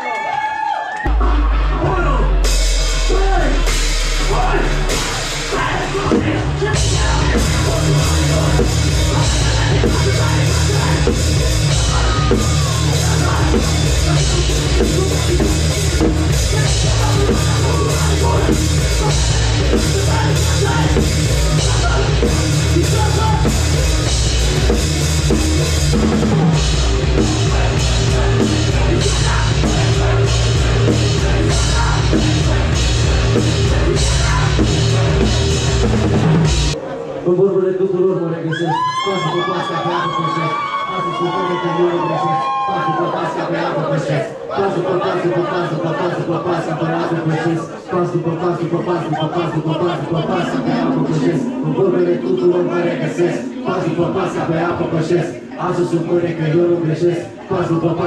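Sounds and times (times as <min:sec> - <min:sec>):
drum kit: 0:01.1 - 0:36.8
bass guitar: 0:01.1 - 0:36.9
heavy guitars: 0:01.1 - 0:37.2, 0:42.8 - 0:58.0.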